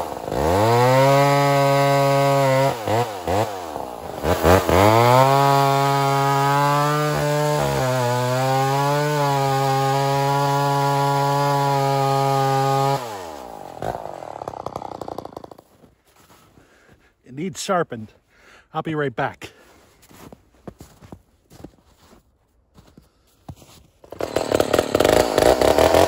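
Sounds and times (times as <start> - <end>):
chainsaw cutting log: 0.0 - 16.0, 24.0 - 26.0.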